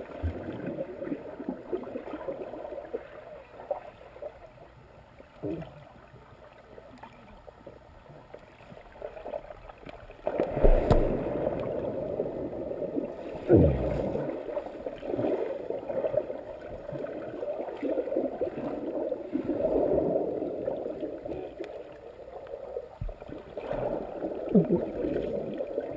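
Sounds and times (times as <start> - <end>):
bubbles and churning water: 0.0 - 25.9
deep underwater thud: 10.4 - 12.1, 13.4 - 14.3.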